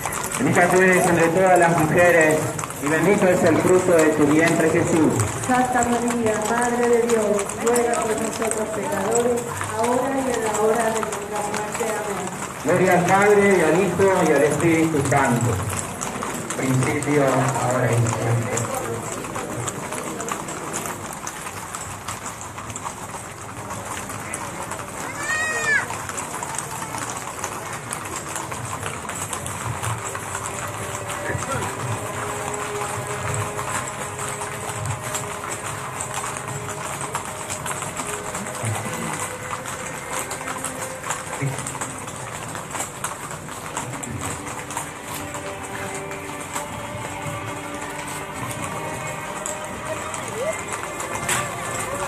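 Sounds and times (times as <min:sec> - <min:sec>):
horse hooves on pavement: 0:00.0 - 0:52.0.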